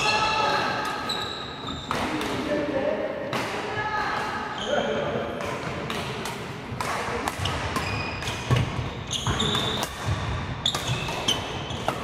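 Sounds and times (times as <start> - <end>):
sneakers squeaking on wooden floor: 0.0 - 2.1, 7.4 - 12.0
rackets hitting shuttlecock: 5.3 - 12.0.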